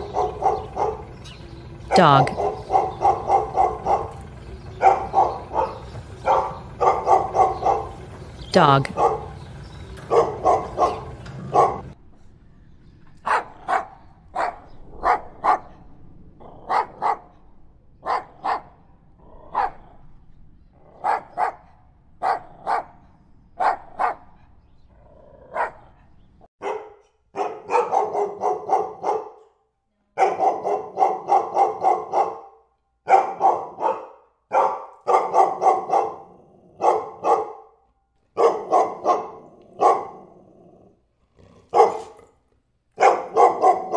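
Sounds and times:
dog barking: 0.0s - 8.1s, 8.9s - 9.4s, 10.0s - 12.0s, 13.2s - 15.8s, 16.6s - 17.4s, 18.0s - 18.8s, 19.5s - 19.9s, 20.9s - 23.0s, 23.6s - 24.4s, 25.5s - 26.0s, 26.6s - 40.4s, 41.7s - 42.3s, 43.0s - 43.9s.

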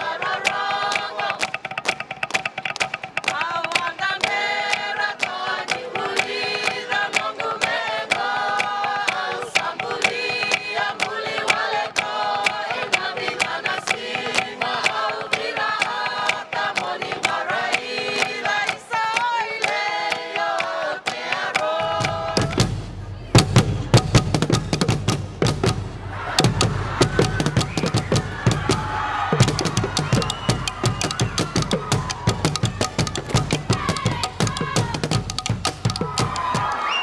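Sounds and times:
choir singing: 0.0s - 1.6s, 3.4s - 24.0s, 26.0s - 37.0s
hand claps and slaps: 0.3s - 21.7s.

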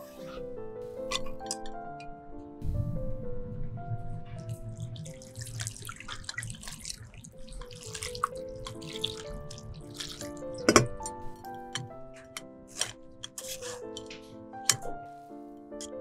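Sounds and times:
water pouring into strainer: 4.4s - 14.0s.

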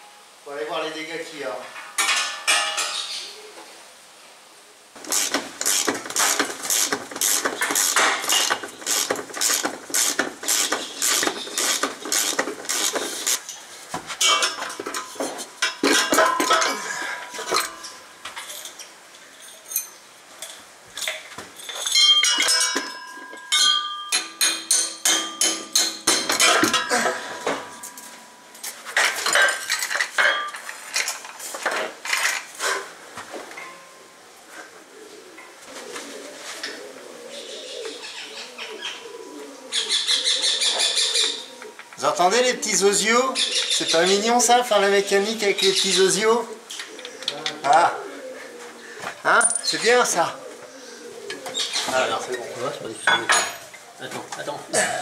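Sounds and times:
ringing metal clanks: 1.8s - 3.1s, 14.2s - 18.8s, 21.6s - 30.6s, 33.6s - 34.0s
metal hand tools clicking: 5.0s - 13.6s.

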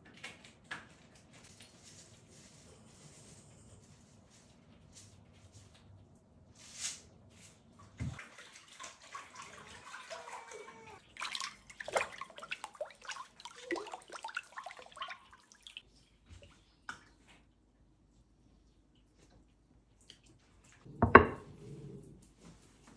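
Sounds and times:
liquid sloshing and dripping: 7.7s - 17.5s.

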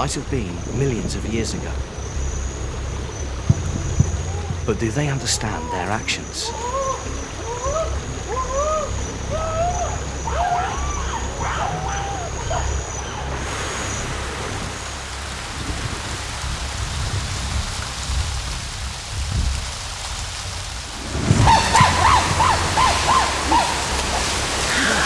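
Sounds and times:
rain falling on leaves: 0.0s - 25.0s
rising and falling calls: 3.6s - 13.4s, 21.0s - 25.0s.

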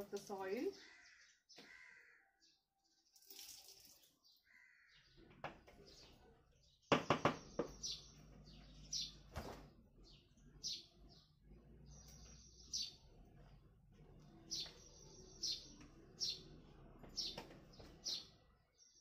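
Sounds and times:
small birds chirping: 0.0s - 19.0s
sharp knocks: 6.9s - 7.8s.

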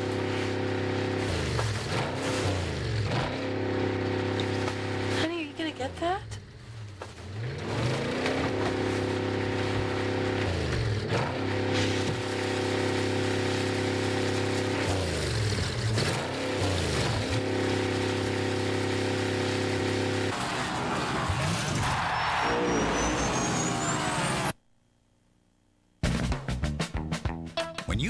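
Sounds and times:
race car engines droning: 0.0s - 24.6s
cars passing by: 16.3s - 24.5s.

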